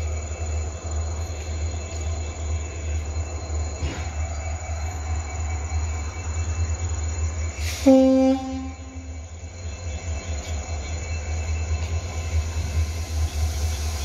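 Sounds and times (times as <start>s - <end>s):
brief hiss: 7.6s - 8.0s
train horn blast: 7.8s - 9.1s.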